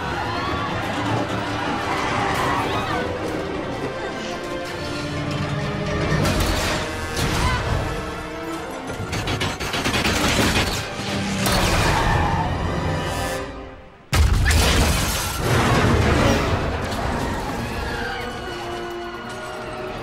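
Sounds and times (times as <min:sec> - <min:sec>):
film score music: 0:00.0 - 0:20.0.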